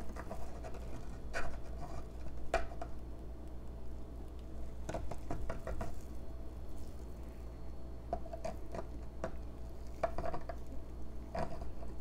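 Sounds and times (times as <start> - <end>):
spatula scraping plastic container: 11.3 - 12.0.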